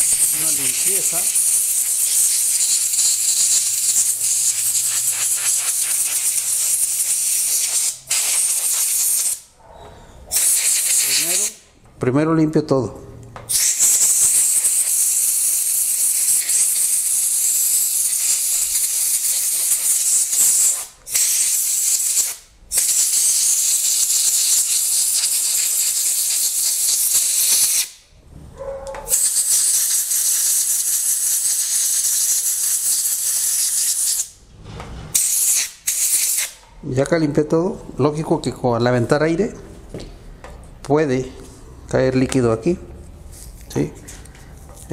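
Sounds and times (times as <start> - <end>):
compressed air hissing: 0.0 - 9.5, 10.3 - 11.6, 13.5 - 28.0, 29.1 - 34.4, 35.1 - 36.6.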